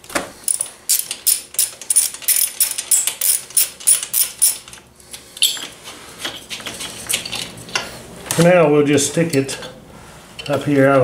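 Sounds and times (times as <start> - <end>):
socket ratchet clicking: 0.5 - 4.8.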